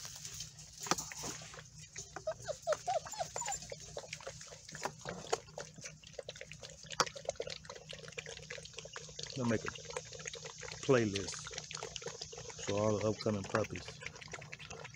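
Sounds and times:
puppies chewing and smacking: 0.2s - 14.9s
puppies whimpering: 1.6s - 5.9s, 10.9s - 14.9s.

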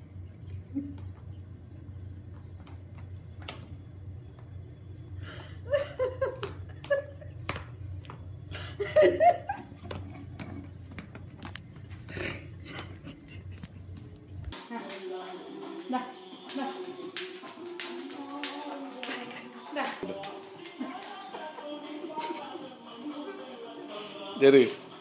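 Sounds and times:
low steady hum: 0.0s - 14.8s
person laughing: 5.5s - 7.4s, 8.6s - 10.3s, 12.1s - 14.0s, 19.0s - 19.8s, 22.0s - 23.5s.

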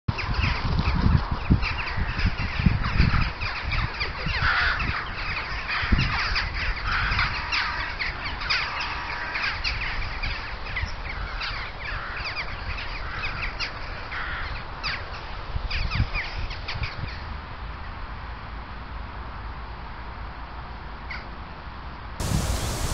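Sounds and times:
corvids calling: 0.1s - 17.1s, 22.2s - 22.9s.

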